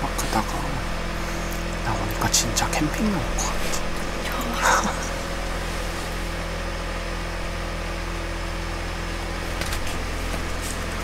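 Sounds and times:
heater and fan humming: 0.0s - 11.0s.

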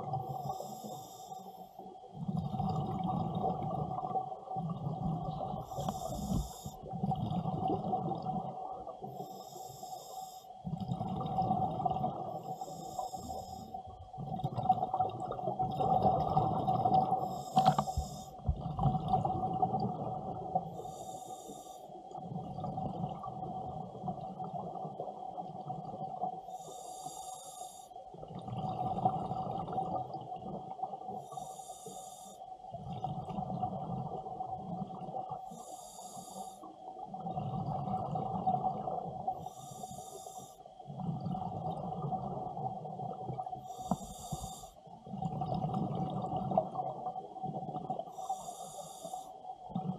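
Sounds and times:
regulator inhalation hiss: 0.3s - 1.8s, 5.6s - 6.8s, 9.1s - 10.5s, 12.4s - 13.8s, 17.2s - 18.4s, 20.7s - 22.0s, 26.5s - 28.0s, 31.2s - 32.4s, 35.5s - 36.7s, 39.4s - 40.6s, 43.6s - 44.8s, 48.1s - 49.4s
exhaled bubbles rumbling: 2.1s - 9.2s, 10.6s - 12.5s, 13.1s - 20.8s, 22.1s - 26.3s, 28.1s - 31.1s, 32.7s - 35.4s, 37.0s - 39.3s, 40.9s - 48.1s.

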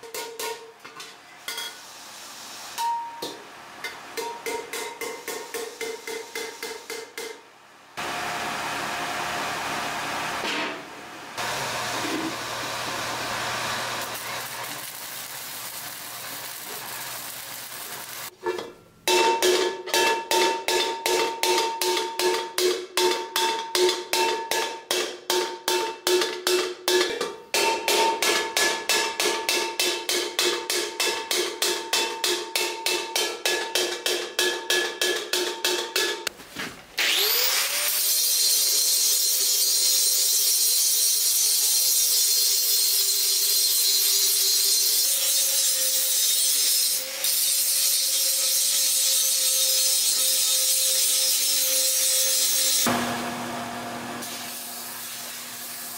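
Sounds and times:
steady hissing: 14.0s - 18.3s.

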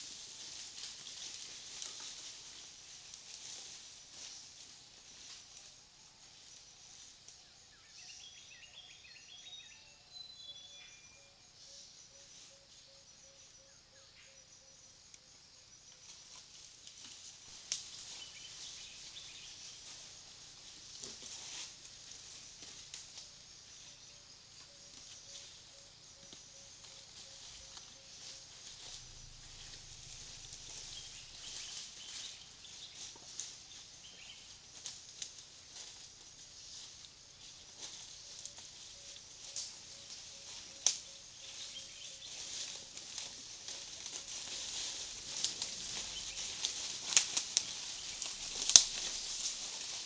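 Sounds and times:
dry leaves rustling: 0.0s - 5.7s, 16.2s - 23.3s, 26.8s - 50.0s
faint steady high hiss: 0.0s - 50.0s
insects chirping: 0.0s - 50.0s
twig snaps: 48.2s - 49.1s.

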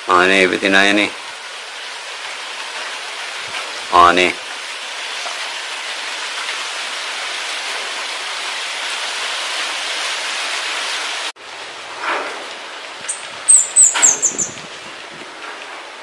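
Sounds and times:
wind through foliage: 0.0s - 16.0s
bird chirps descending: 13.1s - 14.6s.

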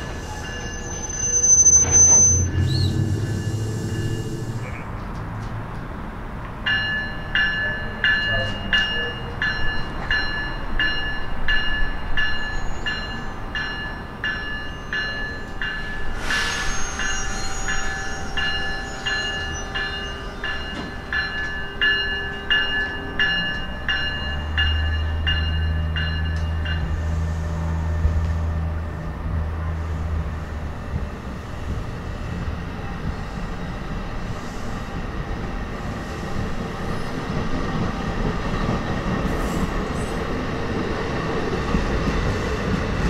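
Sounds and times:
train bell ringing: 0.0s - 4.9s, 6.6s - 27.3s
train passing rush: 0.0s - 43.0s.

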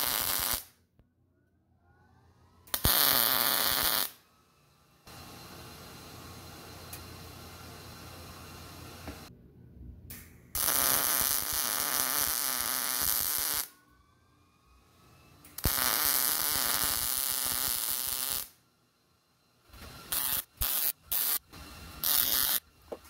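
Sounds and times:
welding arc crackling: 0.0s - 0.7s, 2.7s - 4.2s, 10.6s - 13.7s, 15.6s - 18.6s, 20.0s - 22.6s.

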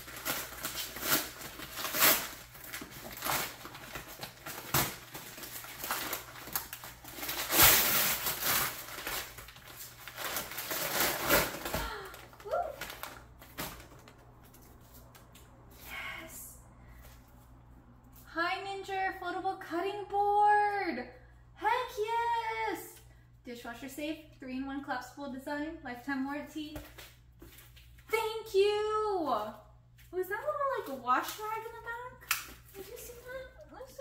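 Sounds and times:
wrapping paper crinkling: 0.0s - 15.2s.

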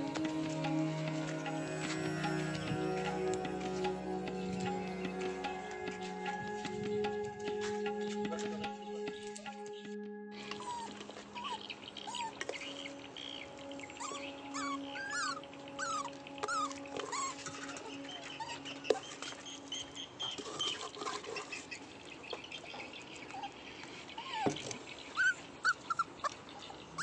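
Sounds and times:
puppies whining and whimpering: 0.0s - 9.0s, 10.4s - 12.8s, 13.6s - 19.4s, 25.2s - 26.3s.

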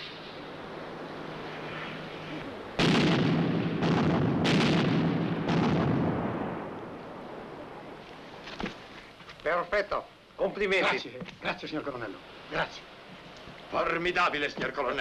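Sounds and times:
low steady hum: 0.0s - 15.0s
artillery blasts rumbling: 2.8s - 6.8s.

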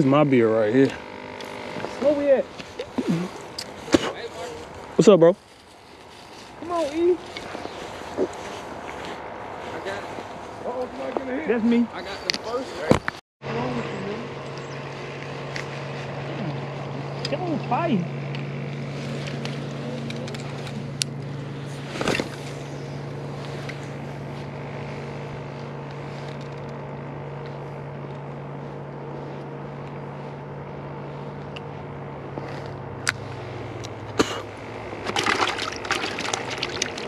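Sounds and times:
low motor hum: 0.0s - 37.0s
rustling: 1.5s - 11.3s, 18.7s - 26.8s.

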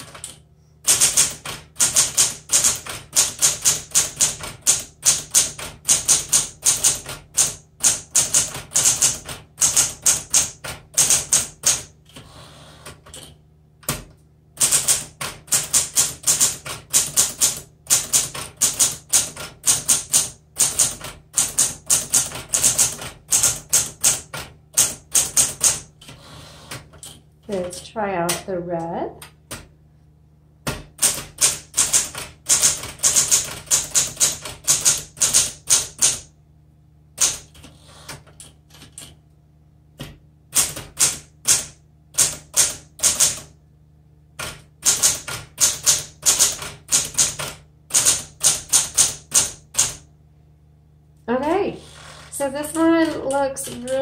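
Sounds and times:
manual typewriter keystrokes: 0.0s - 28.4s, 30.7s - 36.3s, 37.2s - 39.2s, 40.0s - 43.5s, 44.4s - 50.0s, 52.8s - 54.0s.

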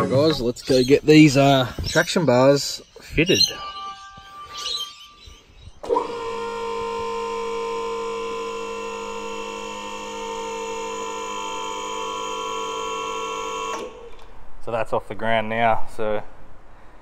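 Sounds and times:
hydraulic pump motor humming: 5.8s - 14.1s.

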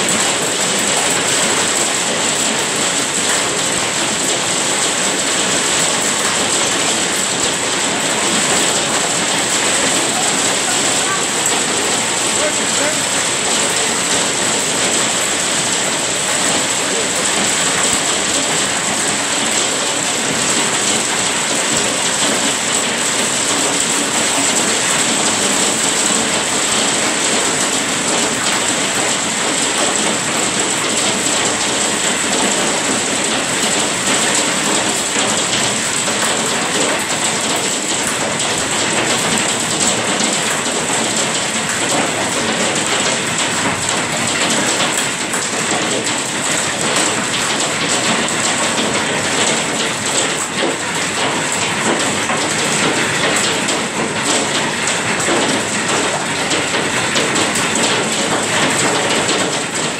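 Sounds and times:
hail and rain on glass: 0.0s - 59.9s.

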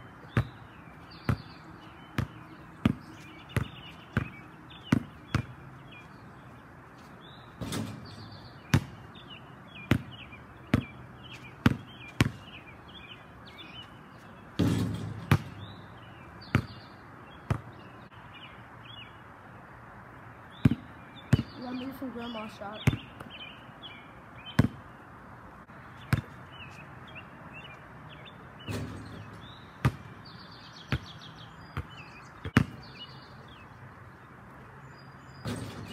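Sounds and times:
birds chirping: 0.0s - 35.9s
basketball bouncing on concrete: 0.2s - 5.6s, 7.6s - 9.1s, 9.7s - 12.6s, 14.6s - 17.8s, 20.6s - 21.6s, 22.8s - 23.3s, 24.5s - 24.8s, 26.0s - 26.6s, 28.6s - 32.9s, 35.4s - 35.9s
rough scraping noises: 35.4s - 35.9s.

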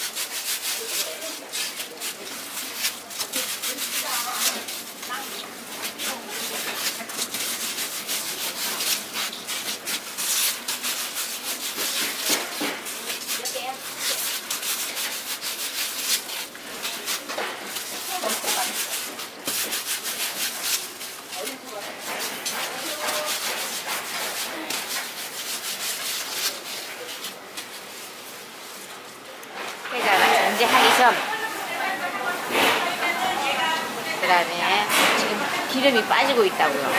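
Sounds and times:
dough rubbing on wooden board: 0.0s - 28.8s.

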